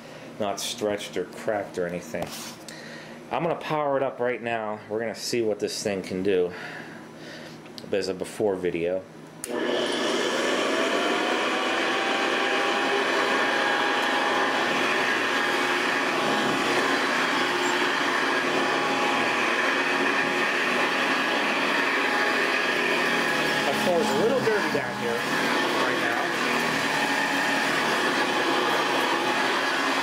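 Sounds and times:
vacuum cleaner switch click: 9.4s - 9.6s
vacuum cleaner motor whining: 9.4s - 30.0s.

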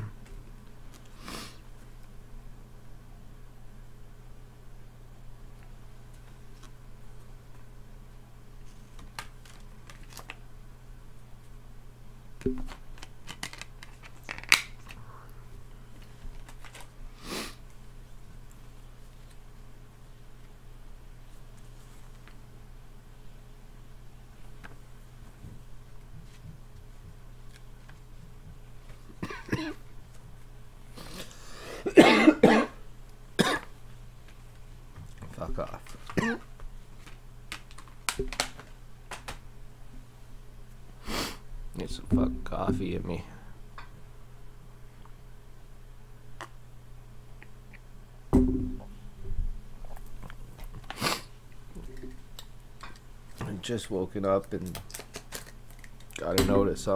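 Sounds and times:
steady low hum: 0.0s - 56.9s
man coughing: 29.2s - 29.8s, 31.8s - 32.8s, 33.4s - 33.7s, 36.2s - 36.4s
plastic disc case clicks: 37.5s - 39.4s.

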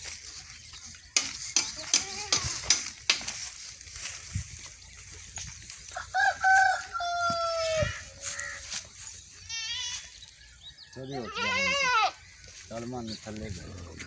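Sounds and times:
rooster crowing: 6.0s - 8.0s.

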